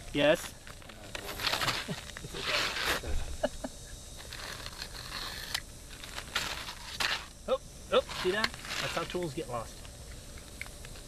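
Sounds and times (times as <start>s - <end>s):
shingles scraping on roof: 1.2s - 3.0s, 4.2s - 7.3s, 8.0s - 9.2s.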